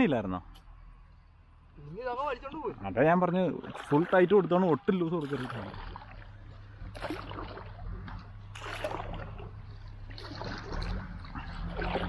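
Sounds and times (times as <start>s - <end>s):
fishing gear rustling in a boat: 5.4s - 12.0s.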